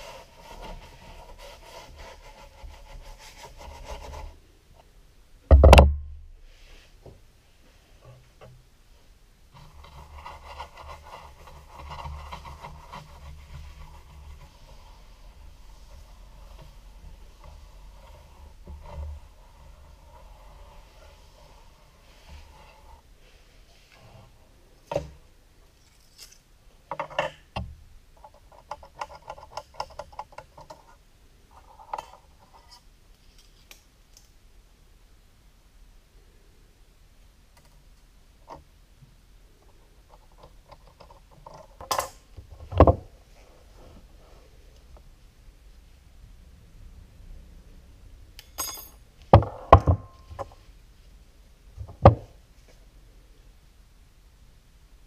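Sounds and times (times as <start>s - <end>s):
metallic rattle of blades: 48.4s - 49.0s
metallic ring: 48.4s - 49.1s.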